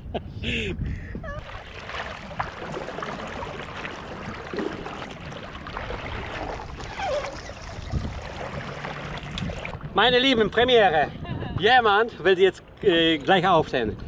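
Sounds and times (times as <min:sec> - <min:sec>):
water sloshing and trickling: 0:01.4 - 0:10.6.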